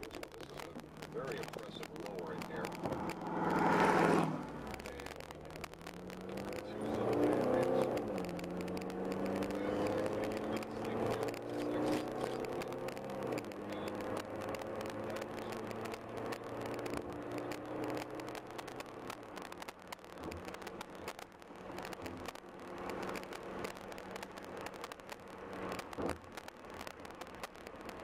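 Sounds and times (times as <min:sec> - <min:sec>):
vehicle engine accelerating: 0:00.0 - 0:28.0
truck passing: 0:02.2 - 0:11.4.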